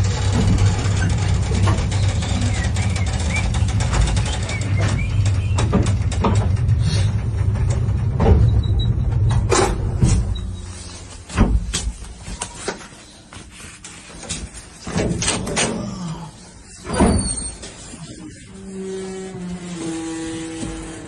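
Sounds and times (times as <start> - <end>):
elevator car stopping clunk: 0.0 - 10.7
elevator rumbling in shaft: 0.0 - 11.7
metal rattles and clanks: 0.0 - 12.0.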